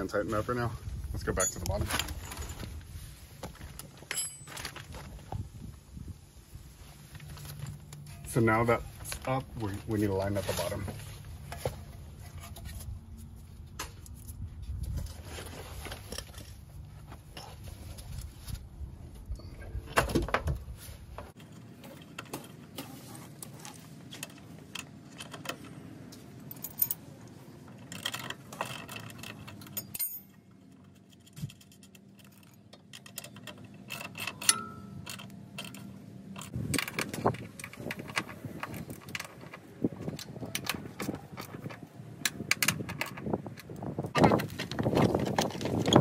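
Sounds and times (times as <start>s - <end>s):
tools clinking on metal parts: 1.3s - 2.6s, 3.8s - 4.8s, 26.4s - 27.1s, 27.7s - 43.4s.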